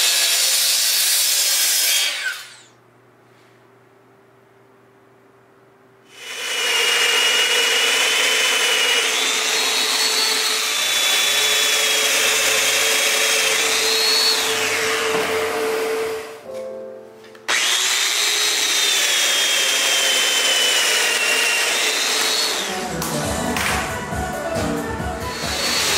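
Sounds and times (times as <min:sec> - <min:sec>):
wood cutting noise: 0:00.0 - 0:02.8, 0:06.1 - 0:16.5, 0:17.5 - 0:25.9
joiner motor whine: 0:01.9 - 0:02.8.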